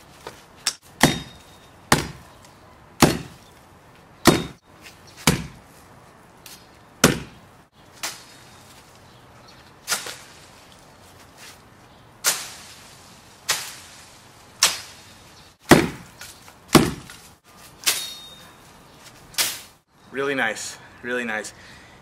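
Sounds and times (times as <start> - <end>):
machete chopping through brush: 0.6 - 2.2, 3.0 - 3.5, 4.2 - 4.6, 5.2 - 5.6, 6.5 - 7.4, 8.0 - 8.4, 9.8 - 10.5, 12.2 - 18.3, 19.3 - 19.8.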